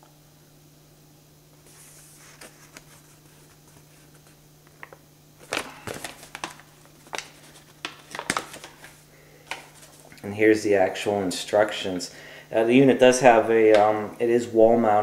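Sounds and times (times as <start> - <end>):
faint low hum: 0.0 - 15.0
paper rustling and crackling: 1.7 - 10.1.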